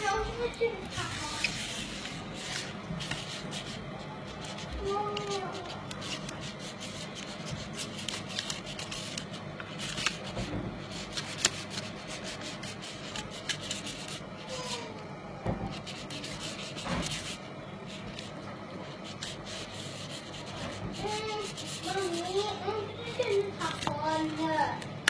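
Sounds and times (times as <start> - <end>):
stick scraping slime in bowl: 0.0 - 3.2.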